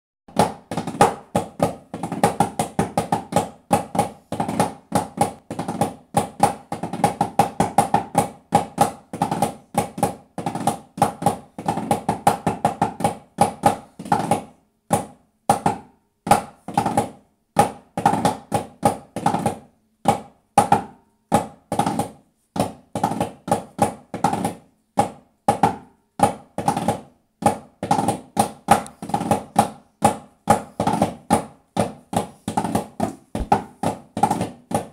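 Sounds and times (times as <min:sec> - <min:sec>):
side drum marching cadences: 0:26.4 - 0:34.9.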